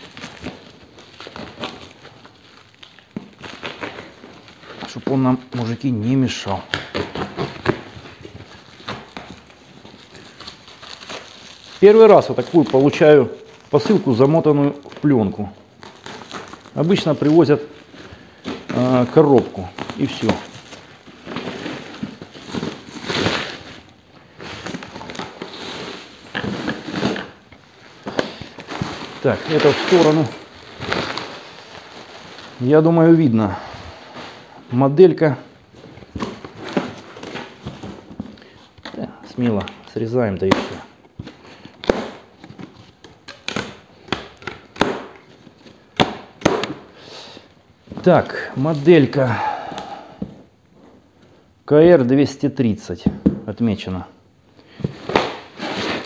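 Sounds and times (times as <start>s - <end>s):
plastic film crinkling: 0.0s - 50.2s, 54.6s - 56.0s
packing straps snapping: 6.6s - 14.0s
scraping rustles: 15.9s - 34.6s.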